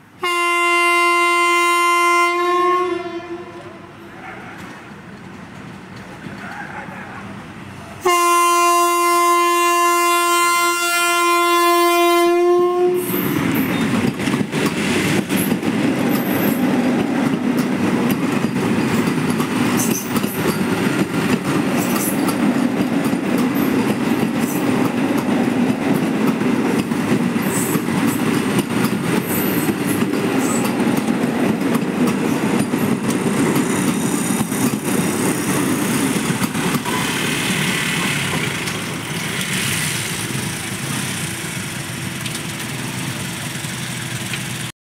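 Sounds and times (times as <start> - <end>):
train wheels rumbling on track: 3.6 - 44.7
clicks of train wheels: 4.3 - 6.9, 13.1 - 44.7.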